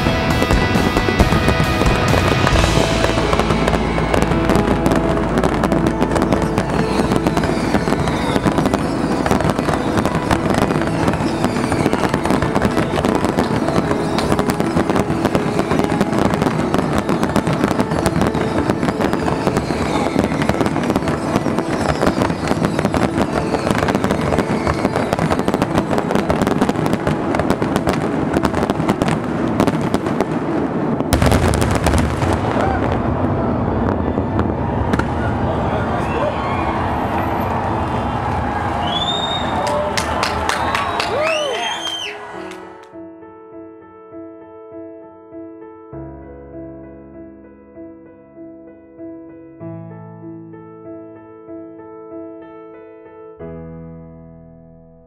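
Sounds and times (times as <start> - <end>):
falling firework whistles: 0.0 - 28.4, 31.1 - 42.8
fireworks bursting and crackling: 0.0 - 42.9.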